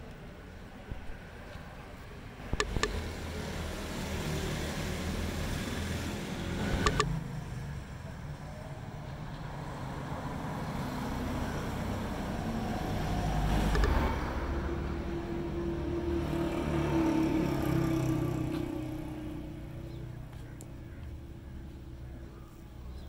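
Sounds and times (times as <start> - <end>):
vehicle engine running: 2.0 - 9.6
sharp clicks: 2.5 - 3.1, 6.7 - 7.2, 13.5 - 14.1.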